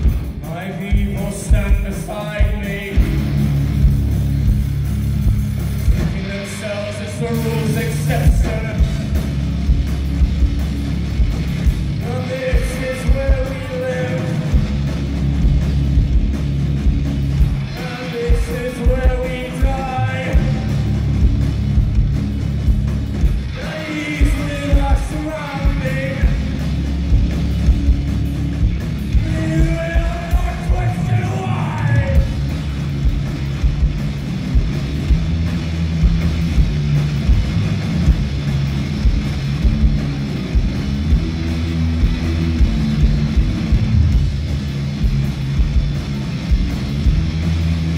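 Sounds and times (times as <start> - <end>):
drums: 0.0 - 47.9
electric guitar: 0.0 - 47.9
person singing: 23.5 - 26.5, 29.1 - 32.4.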